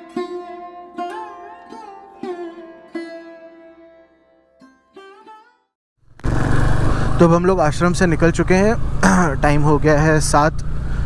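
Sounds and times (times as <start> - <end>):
plucked string notes: 0.0 - 5.7.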